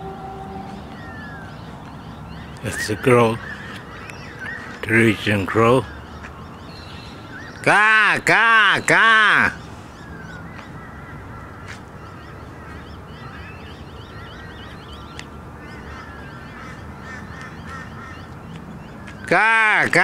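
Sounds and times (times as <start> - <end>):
small birds chirping: 0.0 - 20.0
crow cawing: 2.6 - 4.8, 15.6 - 18.3.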